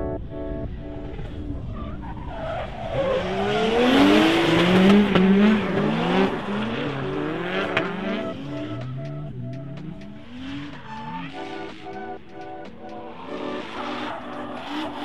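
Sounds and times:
car engines revving hard: 1.1 - 12.0, 12.6 - 15.0
rhythmic music: 3.6 - 15.0.

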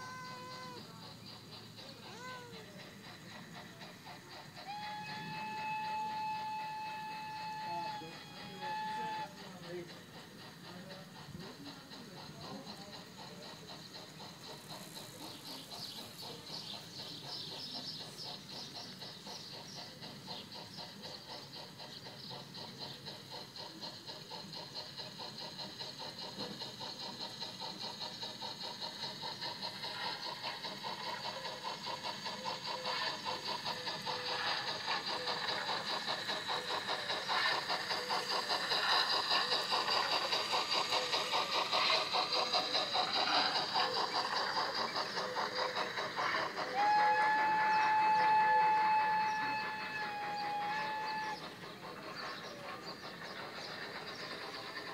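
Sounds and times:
model steam locomotive chuffing: 0.0 - 54.9
train whistle blast: 4.6 - 9.4, 46.7 - 51.4.

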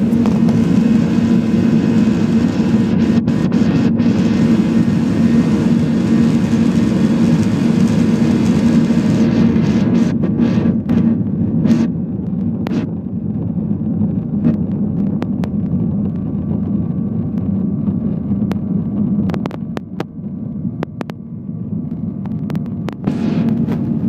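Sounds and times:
airliner engine and rolling rumble: 0.0 - 24.0
sharp clicks and knocks: 19.2 - 20.1, 20.8 - 21.2, 21.9 - 23.9.

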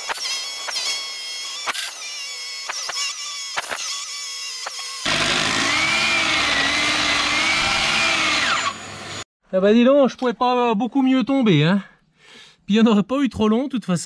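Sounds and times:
rotary hammer drilling through wall: 0.0 - 9.2.

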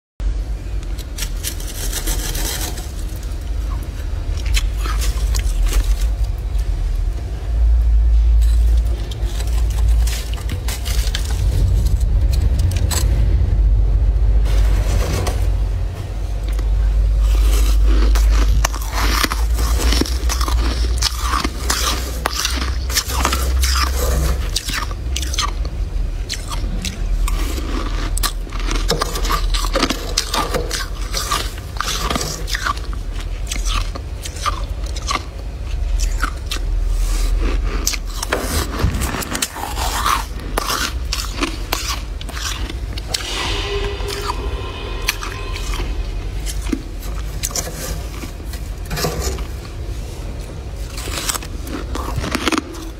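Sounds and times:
metal spoon scraping frost: 1.0 - 3.4, 39.4 - 49.5.

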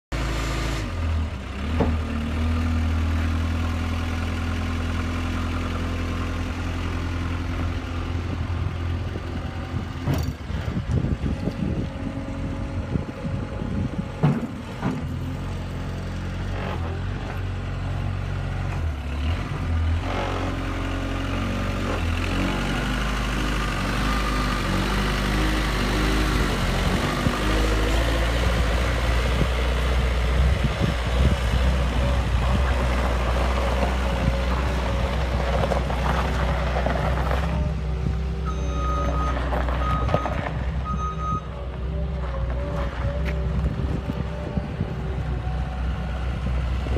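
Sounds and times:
diesel engine running: 0.1 - 46.9
loader clunks: 1.6 - 2.7, 8.6 - 17.7, 31.1 - 45.6.

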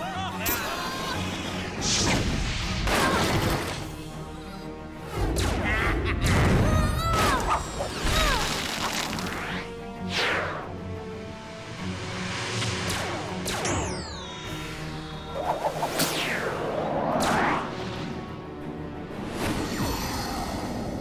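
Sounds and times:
action background music: 0.0 - 21.0
whooshes: 15.3 - 18.2.

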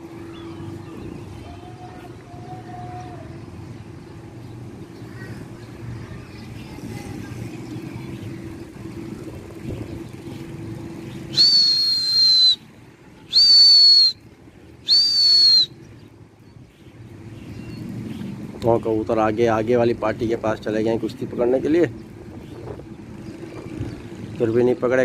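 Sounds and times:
faint background rumble: 0.0 - 25.0
shrill whistle blasts: 11.3 - 12.7, 13.3 - 14.2, 14.8 - 15.8.

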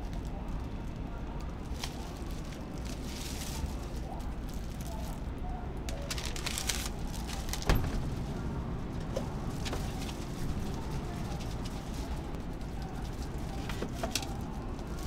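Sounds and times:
steady low hum: 0.0 - 15.0
paper crinkling: 0.1 - 15.0.

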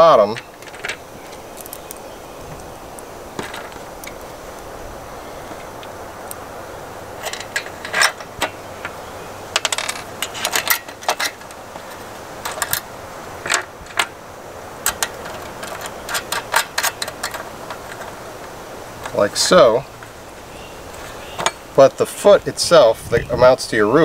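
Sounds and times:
metal hardware clinking on metal frame: 0.0 - 2.0, 7.1 - 14.2, 14.8 - 20.2, 20.9 - 22.2.

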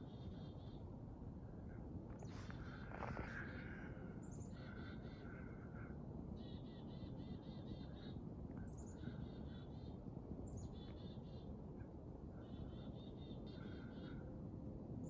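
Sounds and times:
low background rumble: 0.0 - 15.0
small birds calling: 2.2 - 11.5.

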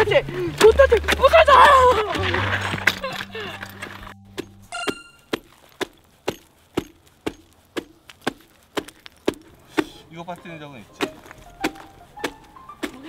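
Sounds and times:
short metallic ring: 4.6 - 5.3
ice chisel striking ice: 11.0 - 13.0.

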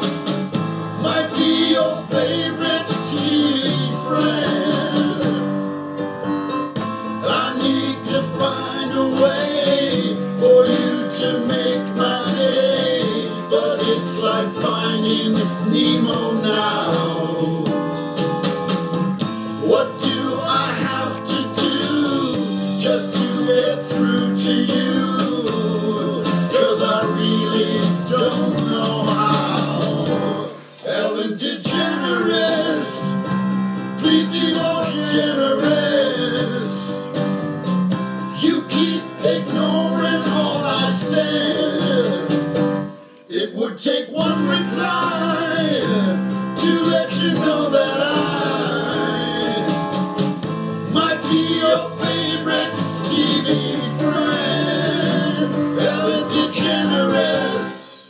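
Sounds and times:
recorded backing music: 0.0 - 58.0
man singing pop song: 1.0 - 5.6, 7.1 - 18.0, 19.3 - 37.1, 38.3 - 42.6, 43.3 - 50.2, 50.8 - 58.0.

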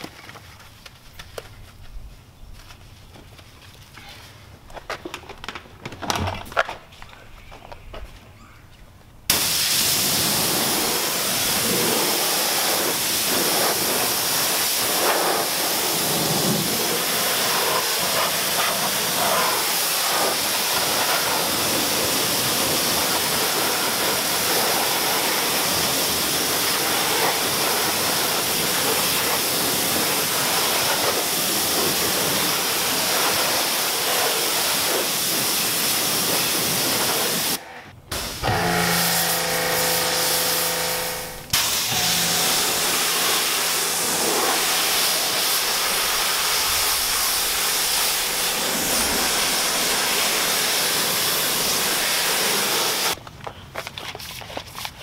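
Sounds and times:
pressure washer jet hissing: 9.3 - 53.2.

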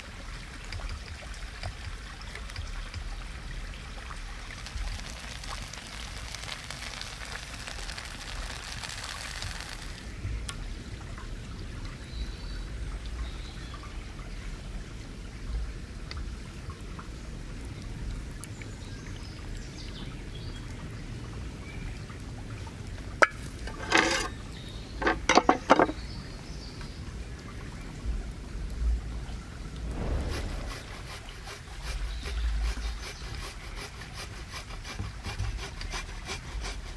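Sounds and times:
low outdoor rumble: 0.0 - 13.3, 20.7 - 33.8
thick sauce pouring: 4.4 - 10.1
loud scraping: 29.9 - 33.6.

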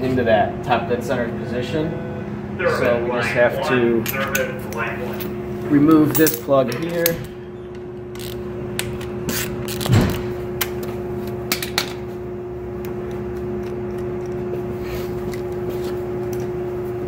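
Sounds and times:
steady low hum: 0.0 - 17.0
hand tools clinking on metal: 5.1 - 7.2.

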